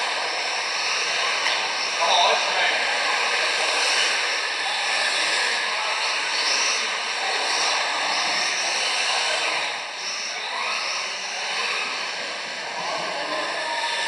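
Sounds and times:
rc car motors whining: 0.0 - 14.0.

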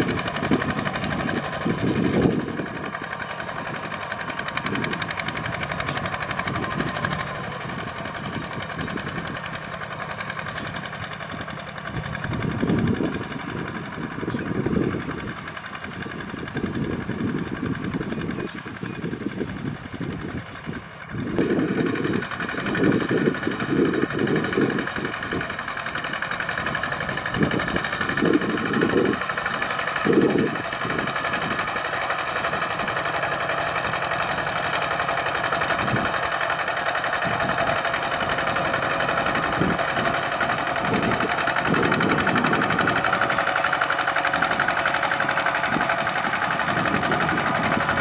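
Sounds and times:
tractor diesel engine running: 0.0 - 48.0.

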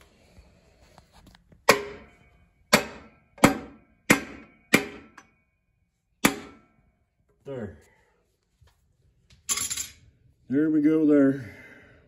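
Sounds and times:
sharp metallic knocks: 1.6 - 5.3, 6.2 - 6.8.

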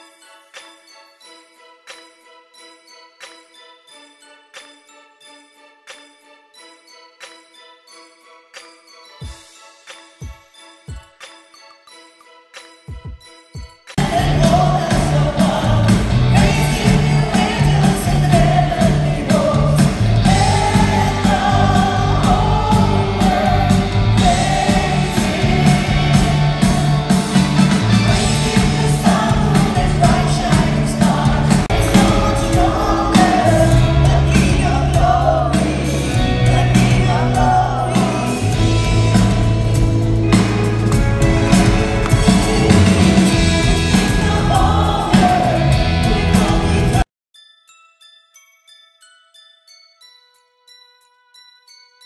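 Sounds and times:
drums: 9.2 - 11.4, 12.6 - 47.0
several voices singing: 14.0 - 39.8, 41.4 - 47.0
bass guitar: 14.0 - 47.0.

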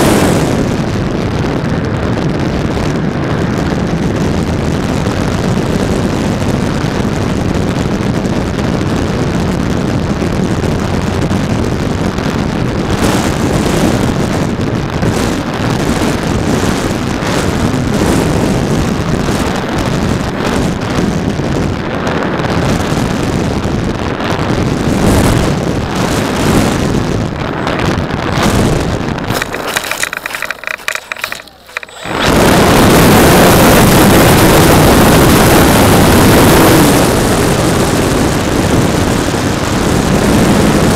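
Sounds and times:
wind rushing over camera: 0.0 - 40.9
model plane motor and propeller: 28.4 - 37.2.

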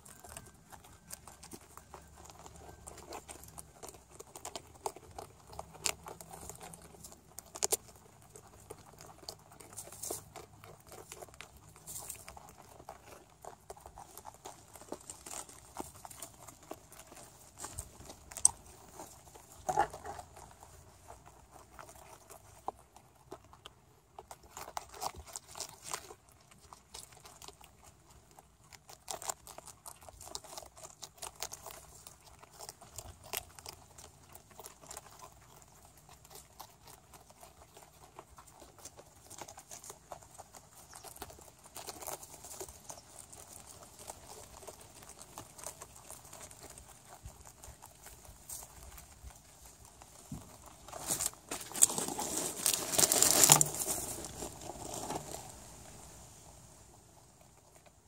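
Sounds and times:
rabbits crunching cabbage: 0.0 - 58.0
leaves rustling: 40.5 - 57.0.

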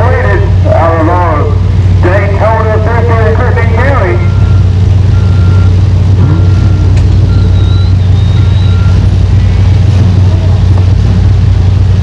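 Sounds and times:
car engines droning: 0.0 - 12.0
backup alarm beeping: 4.0 - 9.8.

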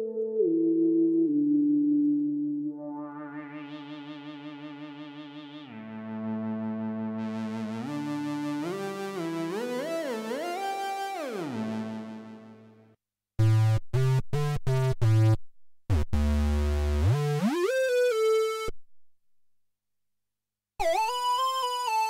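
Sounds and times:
synthesizer lead with portamento: 0.0 - 12.7.

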